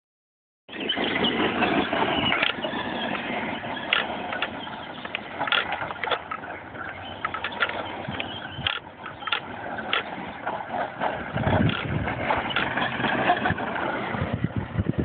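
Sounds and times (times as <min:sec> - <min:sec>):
rc truck motor and tyres on gravel: 0:00.7 - 0:15.0
sharp clicks: 0:03.9 - 0:06.4, 0:07.2 - 0:10.1, 0:11.6 - 0:12.8.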